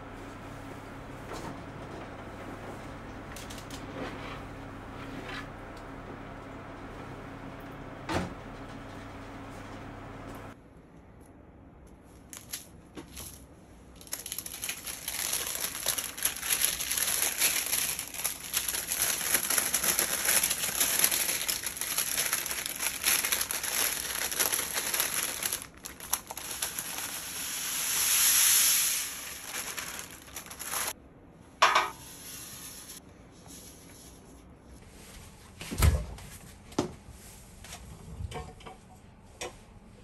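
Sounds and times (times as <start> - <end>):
baking paper crinkling: 12.2 - 31.0.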